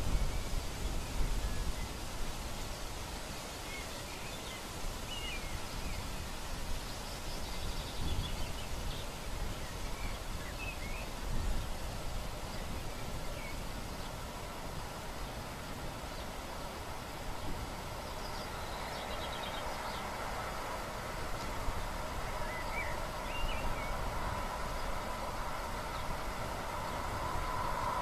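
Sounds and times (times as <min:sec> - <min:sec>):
wind with low gusts: 0:00.0 - 0:28.0.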